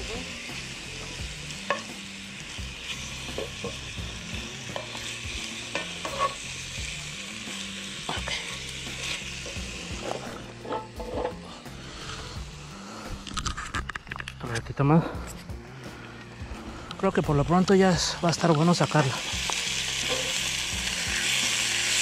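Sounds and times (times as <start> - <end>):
meat sizzling in a skillet: 0.0 - 14.3, 16.3 - 22.0
tongs scraping a pan: 5.7 - 6.5, 8.1 - 12.3, 20.0 - 20.4.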